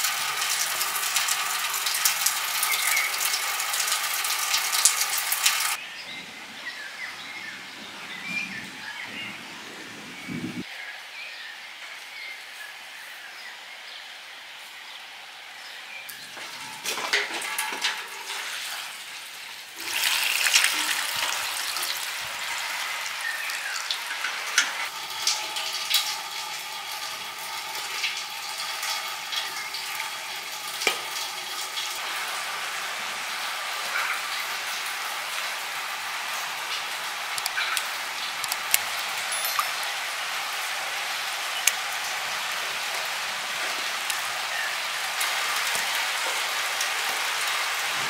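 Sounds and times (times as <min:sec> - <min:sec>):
water pouring into metal basin: 0:00.0 - 0:05.8, 0:16.1 - 0:48.0.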